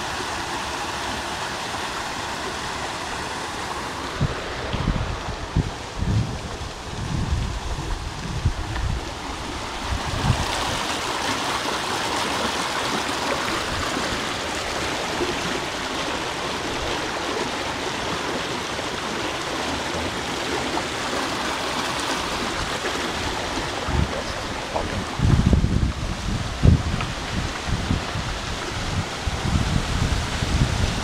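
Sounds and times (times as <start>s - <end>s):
creek water rushing over stones: 0.0s - 31.0s.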